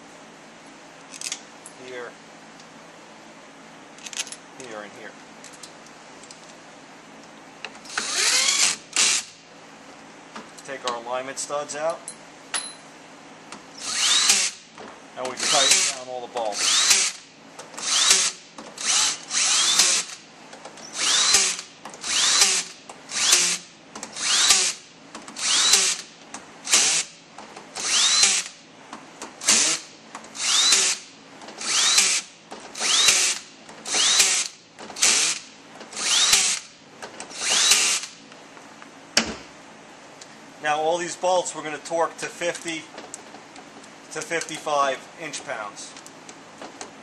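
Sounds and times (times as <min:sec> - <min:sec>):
power drill running bolts: 0:07.8 - 0:09.4, 0:13.8 - 0:20.2, 0:20.8 - 0:28.6, 0:29.4 - 0:38.2.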